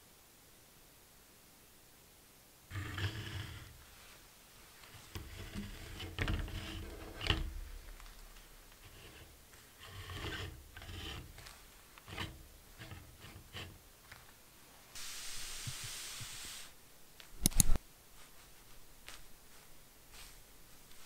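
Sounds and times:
steady hiss: 0.0s - 21.0s
phone rubbing against plastic: 5.0s - 7.5s
sharp clicks: 17.2s - 17.8s.

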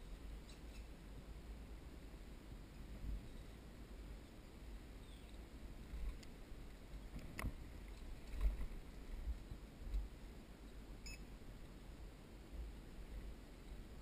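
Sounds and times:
short electronic beep: 11.0s - 11.2s.

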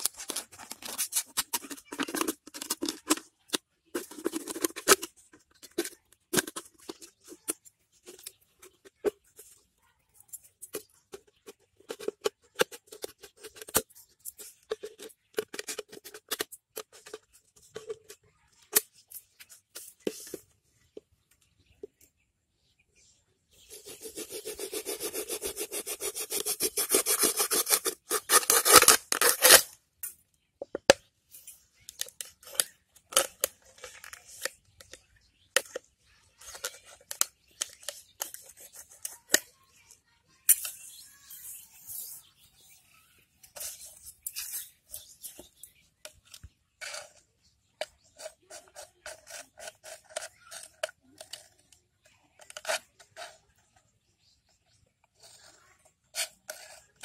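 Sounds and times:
plastic crackles and clicks: 0.0s - 9.6s, 26.8s - 31.1s, 31.8s - 41.0s
blade sawing through plastic bottle: 23.7s - 29.7s, 48.1s - 51.5s.

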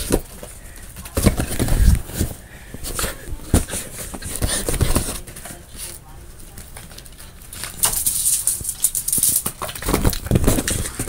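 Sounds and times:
dog scuffling with a toy: 0.0s - 6.0s.

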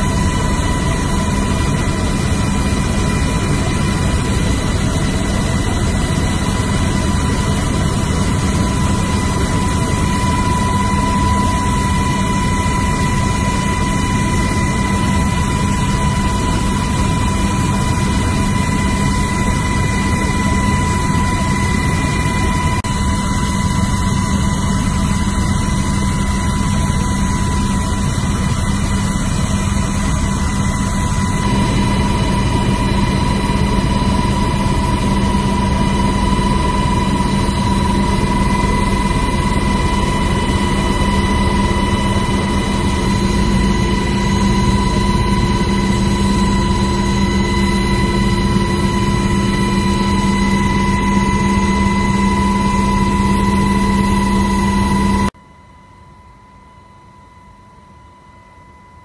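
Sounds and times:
aircraft engine cabin noise: 0.0s - 55.4s
constant whine: 0.0s - 59.0s.

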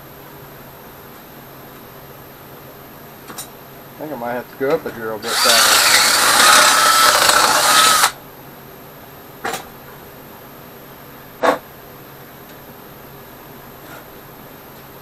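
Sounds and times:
cordless drill boring: 5.2s - 8.2s.

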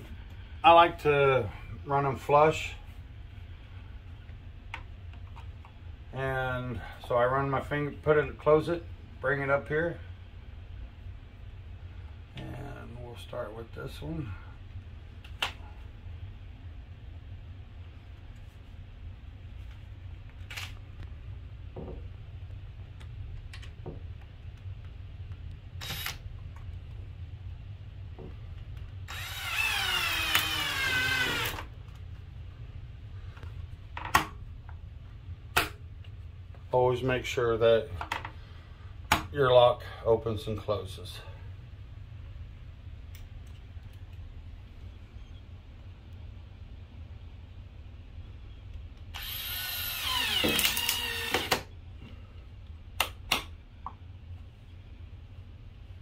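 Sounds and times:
cordless drill motor whining: 25.8s - 26.2s, 29.1s - 31.7s, 49.1s - 51.6s.

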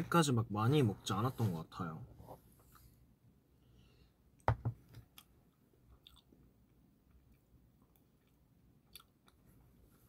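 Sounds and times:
mouth clicks and smacks chewing: 5.1s - 6.4s, 7.3s - 9.4s.

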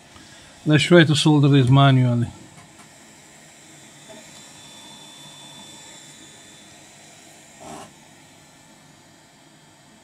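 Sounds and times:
workshop background hiss: 0.0s - 2.9s, 7.6s - 8.0s.

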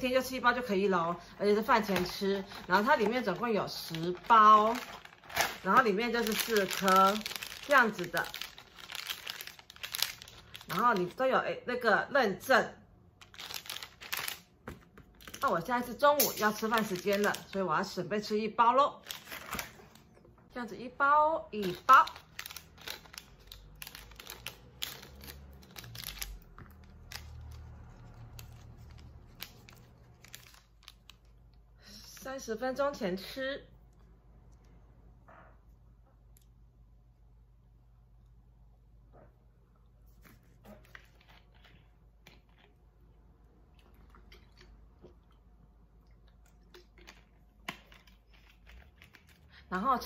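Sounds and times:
packet crinkling and tearing: 1.7s - 11.2s, 13.2s - 15.6s, 16.4s - 17.7s, 19.0s - 20.0s, 21.6s - 31.6s, 46.7s - 49.5s.

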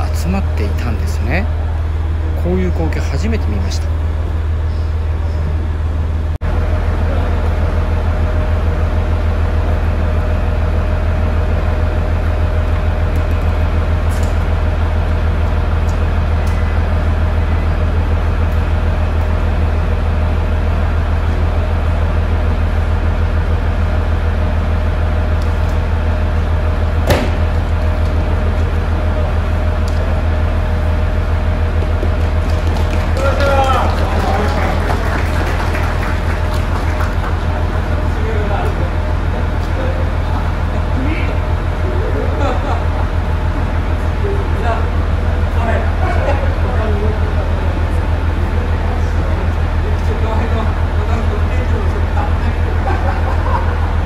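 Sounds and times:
railcar engine idling hum: 0.0s - 54.0s
sharp knock: 27.0s - 27.5s.

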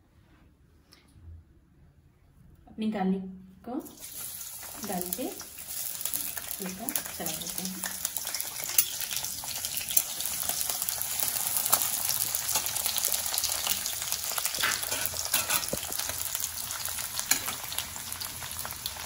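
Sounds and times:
garlic sizzling in oil: 3.8s - 19.0s
steel spatula stirring: 8.3s - 9.2s, 14.6s - 16.2s.

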